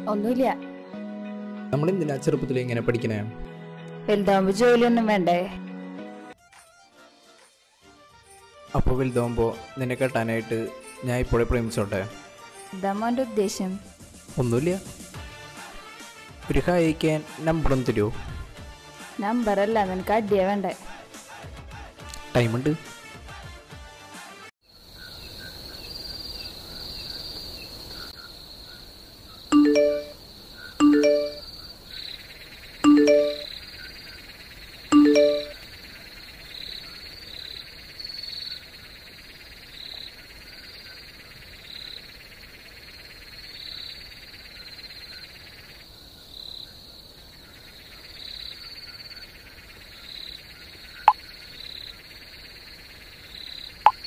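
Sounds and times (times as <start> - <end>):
insects trilling: 24.7 - 54.0.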